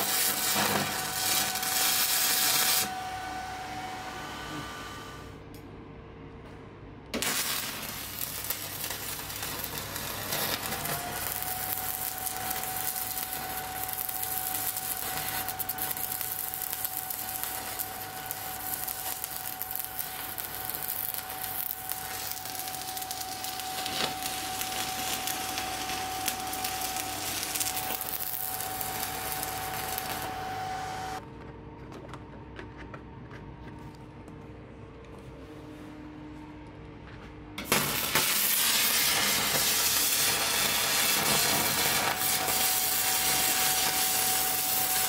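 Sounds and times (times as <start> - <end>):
welding arc crackling hiss: 0.0 - 3.4, 7.2 - 31.2, 37.6 - 45.0
steady high whine: 7.2 - 31.3.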